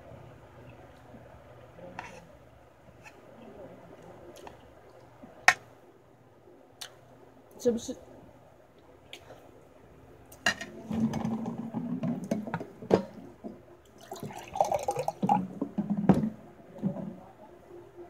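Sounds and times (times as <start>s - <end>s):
water pouring into glass: 14.0s - 15.5s.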